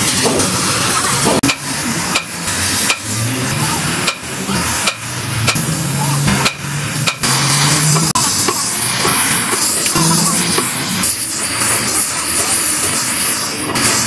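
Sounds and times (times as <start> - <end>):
torch flame hissing: 0.0 - 14.0.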